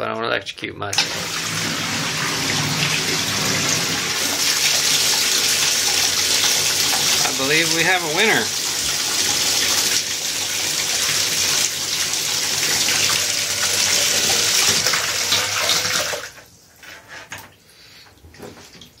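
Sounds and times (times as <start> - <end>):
pump rushing water: 1.0 - 16.4
water splashes and drips: 17.4 - 19.0.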